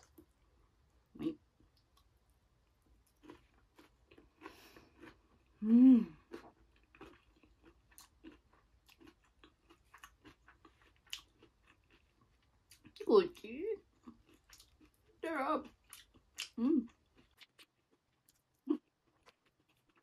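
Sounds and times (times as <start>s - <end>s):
person chewing food: 1.6s - 13.0s, 13.8s - 20.0s
hummed mmm: 5.6s - 6.4s.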